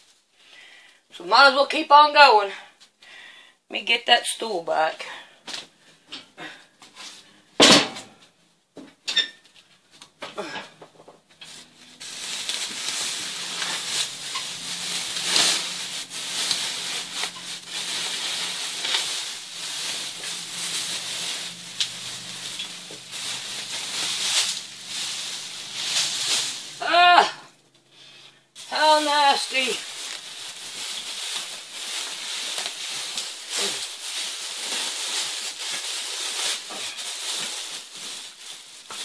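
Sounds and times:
insulation rustling and crackling: 10.9 - 26.9, 27.5 - 39.0.

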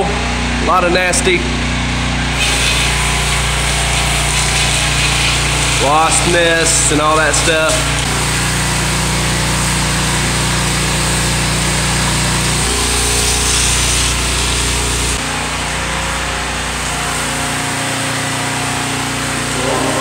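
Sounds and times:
pressure washer engine hum: 0.0 - 20.0
water spray hissing: 2.4 - 15.2.

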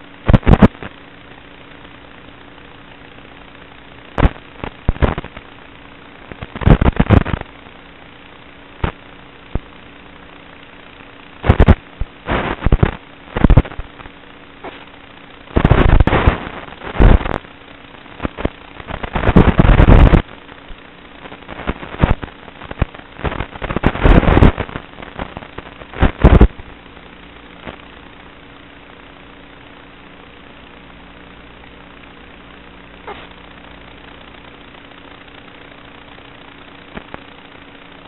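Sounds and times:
low steady hum: 0.0 - 38.0
radio static crackling: 0.0 - 38.0.

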